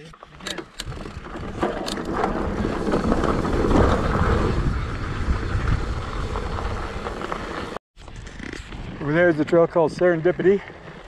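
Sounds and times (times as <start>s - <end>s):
wind rushing on microphone: 0.8s - 7.2s.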